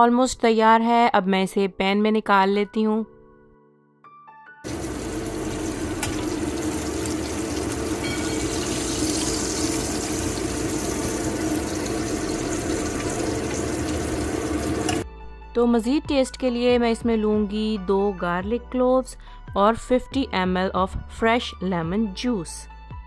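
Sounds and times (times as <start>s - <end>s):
fish sizzling in a pan: 4.7s - 15.0s.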